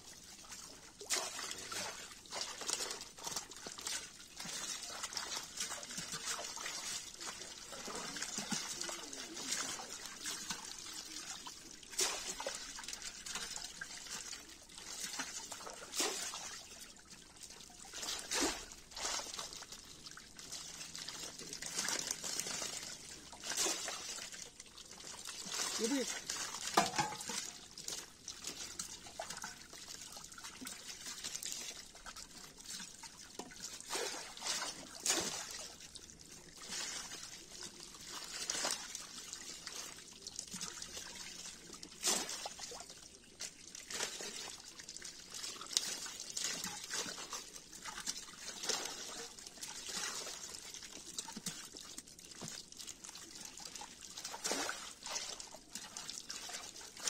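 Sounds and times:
water splashing and trickling: 0.0s - 57.0s.

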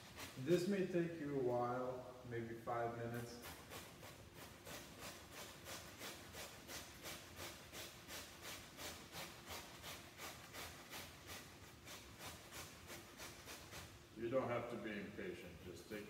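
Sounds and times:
potatoes rasping on a grater: 0.0s - 0.7s, 3.4s - 14.0s.

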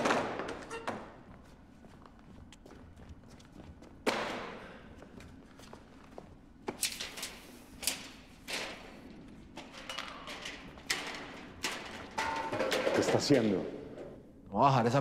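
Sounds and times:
objects clattering on steel counter: 9.6s - 13.6s.

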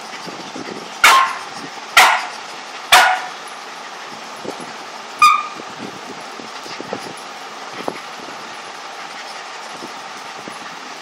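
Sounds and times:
dog barking: 1.0s - 1.4s, 2.0s - 2.3s, 2.9s - 3.4s.

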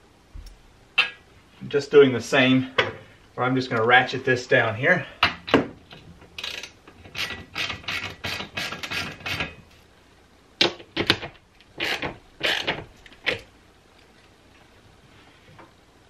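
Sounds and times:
ratchet wrench clicking: 6.4s - 9.5s.

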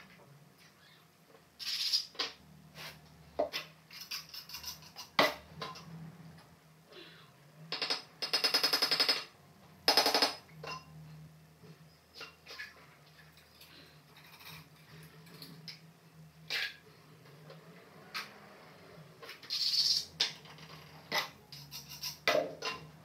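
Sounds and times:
tiles and tools clicking: 3.6s - 5.9s, 19.2s - 22.9s
rasping scrape on tile: 21.5s - 22.3s.

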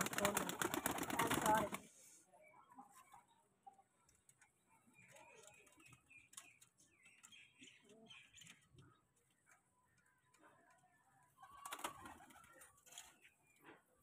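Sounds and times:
faint bird chirps: 2.3s - 14.0s.

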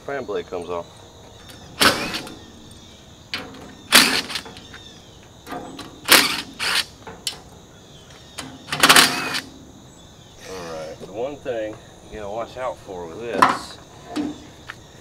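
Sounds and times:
power driver bursts: 1.8s - 2.3s, 3.9s - 4.5s, 6.1s - 7.0s, 8.8s - 9.5s.

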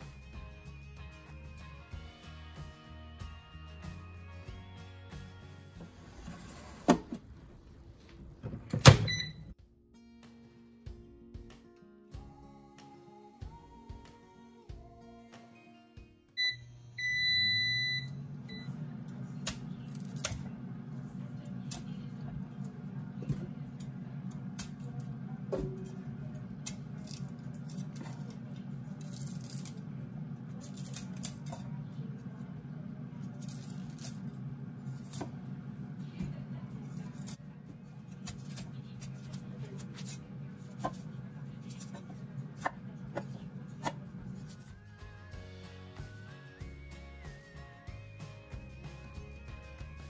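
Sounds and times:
air fryer beeping: 5.8s - 9.6s, 16.4s - 44.5s
low hum: 16.4s - 44.6s
cutting and crunching cauliflower: 26.6s - 32.4s, 33.2s - 35.5s, 36.8s - 44.7s.

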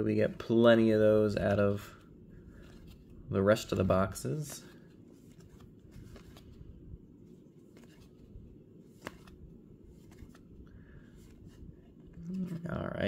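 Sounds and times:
cards sliding and clicking: 4.4s - 6.6s, 7.6s - 12.1s.

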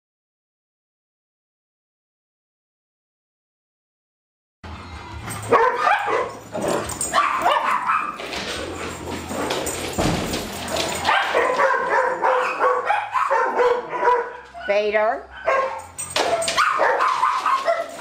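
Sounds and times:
dogs barking and whining: 4.7s - 18.0s
thump: 9.9s - 10.6s.

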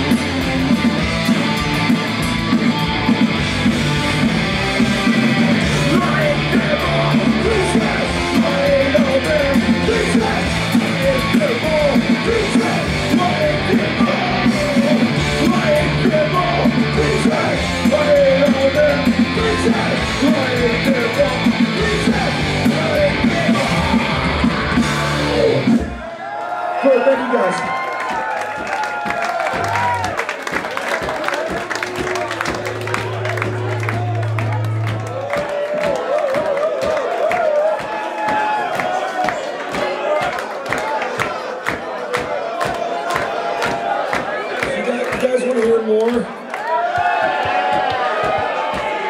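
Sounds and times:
punk rock band playing live: 0.0s - 26.0s
person singing: 5.5s - 25.8s.

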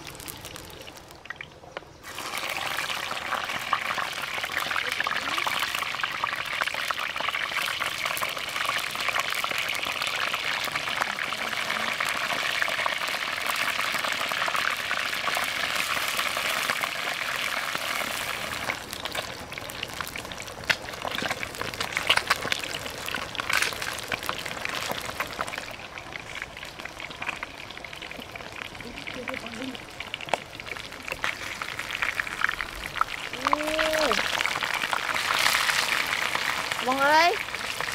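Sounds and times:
fish deep-frying in oil: 0.0s - 37.9s.

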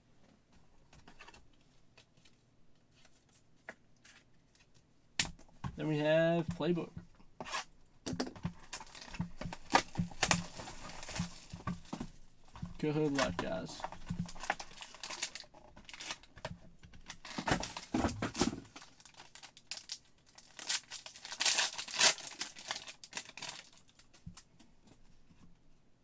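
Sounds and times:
foil wrapper crinkling and tearing: 13.1s - 16.3s, 17.1s - 17.9s, 18.7s - 24.1s.

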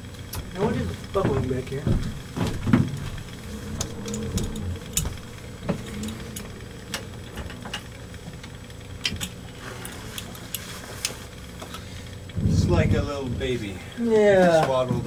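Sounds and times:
diesel engine idling: 0.7s - 10.5s.

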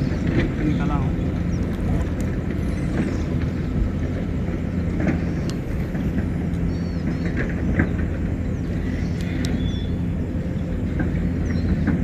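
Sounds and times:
distant engine hum: 0.0s - 12.0s
bird chirping: 5.1s - 11.8s.

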